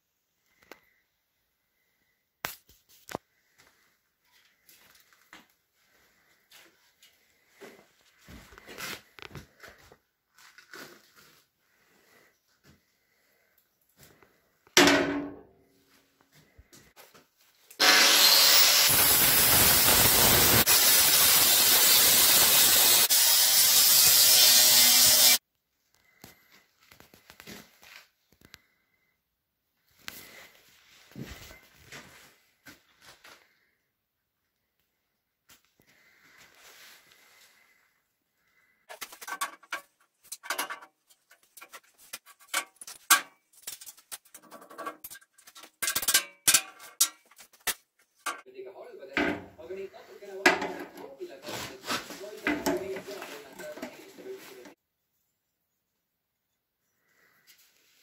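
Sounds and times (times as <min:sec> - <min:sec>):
angle grinder on steel: 0:17.8 - 0:25.4.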